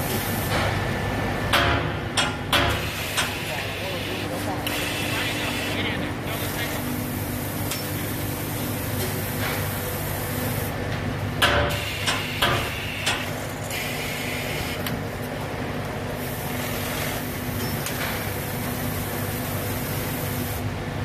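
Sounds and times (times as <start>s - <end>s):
sharp mechanical knocks and clatter: 1.5s - 3.4s, 11.4s - 13.7s, 17.6s - 18.3s
machine humming: 2.8s - 17.7s.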